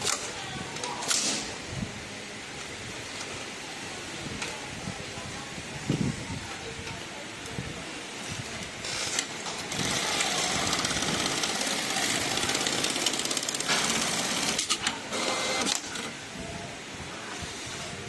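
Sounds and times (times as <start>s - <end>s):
sewing machine stitching: 9.0s - 16.0s.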